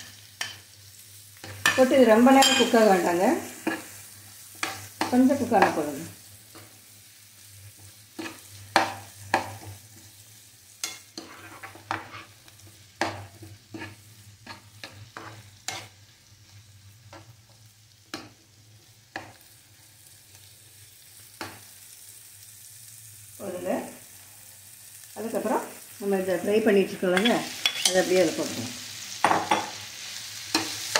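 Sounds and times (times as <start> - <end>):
faint sizzle: 0.0 - 30.9
spatula scraping a frying pan: 7.7 - 10.2, 10.8 - 16.0, 27.2 - 28.1.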